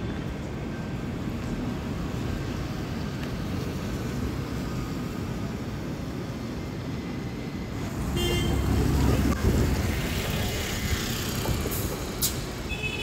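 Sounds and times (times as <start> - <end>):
rumble of buses and traffic: 0.0 - 13.0
vehicle approaching: 7.7 - 12.6.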